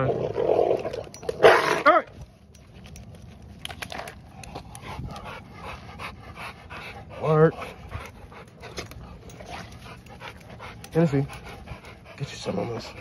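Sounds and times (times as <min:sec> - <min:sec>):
dog panting hard: 0:04.4 - 0:13.0.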